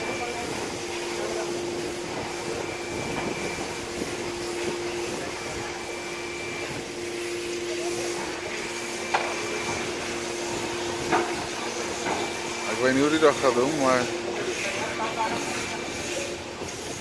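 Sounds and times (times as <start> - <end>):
machine hum with hiss: 0.0 - 17.0
thin whine: 0.0 - 17.0.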